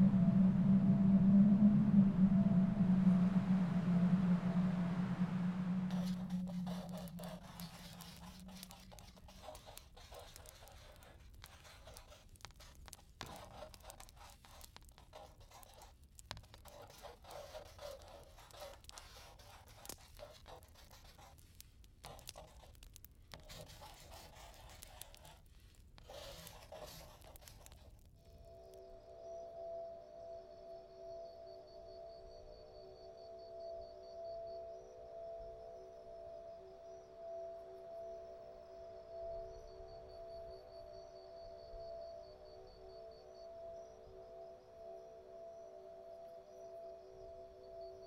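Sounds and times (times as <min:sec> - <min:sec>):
faint scratching and crackling: 0:05.7 - 0:28.8.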